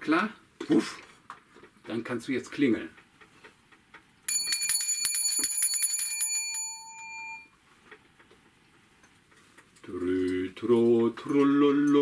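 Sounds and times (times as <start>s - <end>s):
small hand bell ringing: 4.3s - 7.5s.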